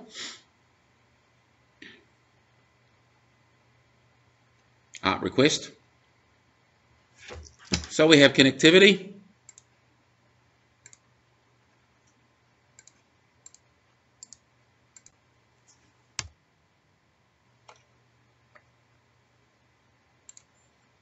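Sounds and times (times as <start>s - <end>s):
faint low hum: 0.0s - 21.0s
computer mouse clicks: 9.5s - 9.7s, 10.8s - 11.1s, 12.8s - 16.3s, 17.6s - 17.9s, 20.2s - 20.7s.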